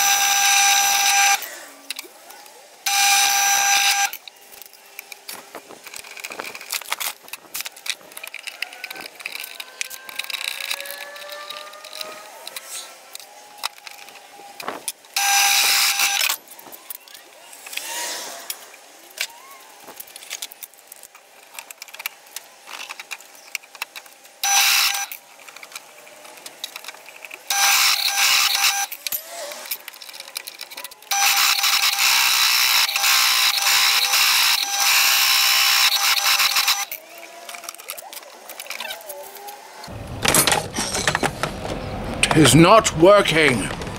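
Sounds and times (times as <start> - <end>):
drill press whining and grinding: 0.0 - 1.5, 27.4 - 29.6
handling clicks and knocks: 37.0 - 42.9
person speaking: 42.2 - 43.8.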